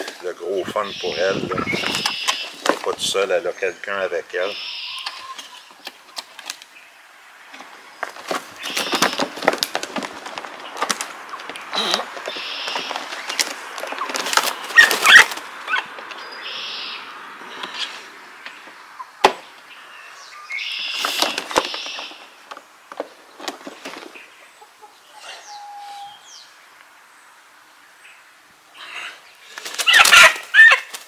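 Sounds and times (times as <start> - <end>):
hen squawking: 0.5 - 2.6
hen flapping wings: 8.0 - 15.5, 29.5 - 31.0.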